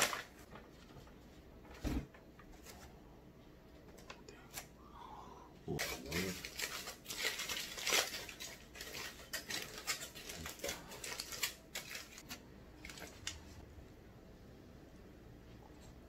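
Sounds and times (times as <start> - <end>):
aluminium foil crinkling: 0.0 - 1.1, 5.8 - 13.6.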